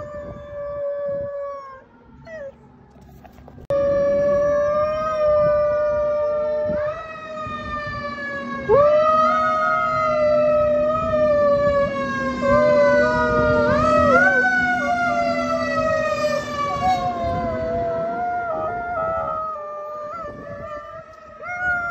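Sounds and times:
dog howling: 0.0s - 2.6s, 12.4s - 15.2s, 16.6s - 21.9s
fire truck siren: 0.0s - 21.9s.

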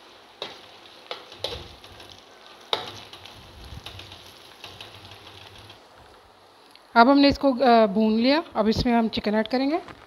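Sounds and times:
faint sizzle: 0.0s - 10.0s.

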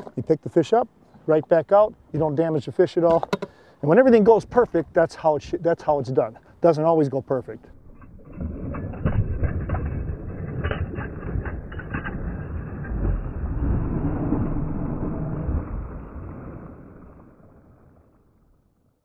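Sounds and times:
water splashing and churning: 7.4s - 18.5s.

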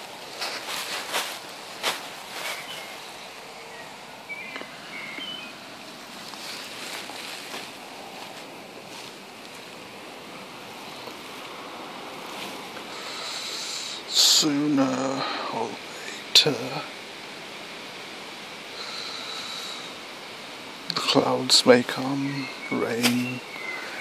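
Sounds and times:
outdoor breeze hiss: 0.0s - 24.0s
faint bird chirps: 2.3s - 7.4s, 21.9s - 24.0s.

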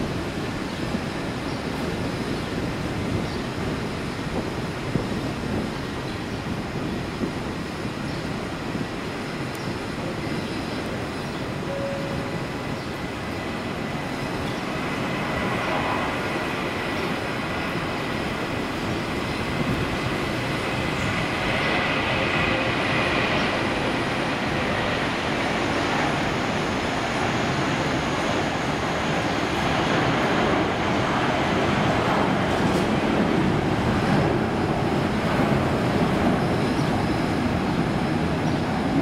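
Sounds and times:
jet engines roaring at takeoff: 0.0s - 39.0s.

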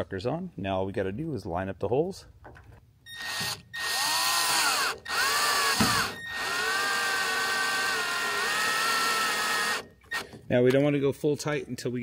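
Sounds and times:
cordless drill driving screws: 3.1s - 10.4s.

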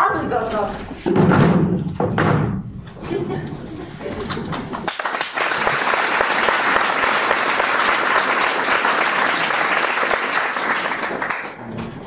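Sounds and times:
audience clapping: 4.1s - 11.7s.

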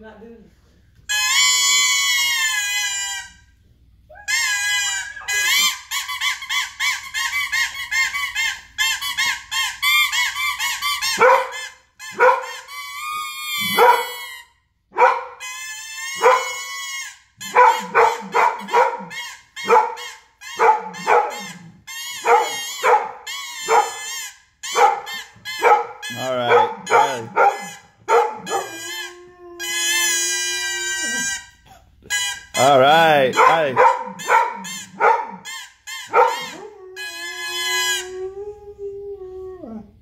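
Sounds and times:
toy trumpet toots: 1.1s - 3.5s, 4.2s - 14.6s, 15.3s - 38.2s
dog howling: 16.0s - 16.8s, 17.4s - 24.1s, 24.8s - 31.2s, 36.1s - 40.0s.

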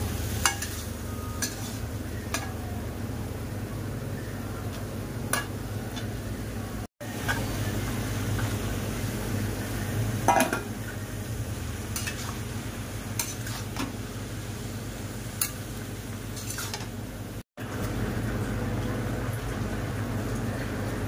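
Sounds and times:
faint sizzle: 0.0s - 21.0s
metal spatula scraping steel pan: 0.4s - 1.8s, 16.4s - 16.9s.

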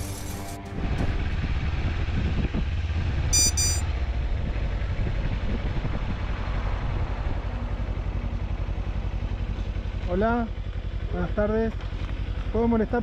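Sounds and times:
motorcycle engine idling: 0.0s - 13.0s
short high-pitched beeps: 3.3s - 3.9s.

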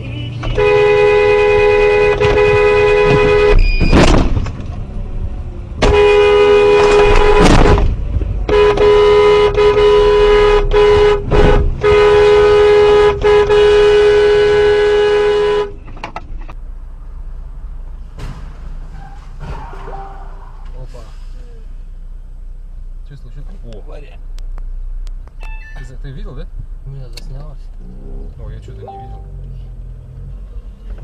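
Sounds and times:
road noise: 0.0s - 31.0s
two-tone car horn blasts: 0.2s - 3.9s, 5.8s - 15.8s.

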